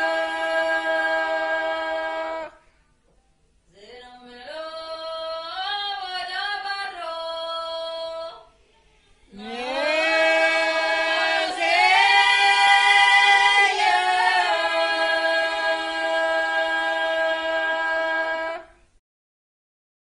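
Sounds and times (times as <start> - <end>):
women singing unaccompanied: 0.0 - 2.6, 3.7 - 8.6, 9.3 - 18.9.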